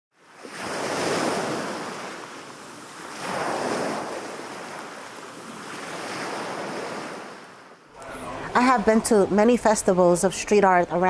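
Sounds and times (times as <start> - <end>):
waves washing on pebble beach: 0.2 - 7.4.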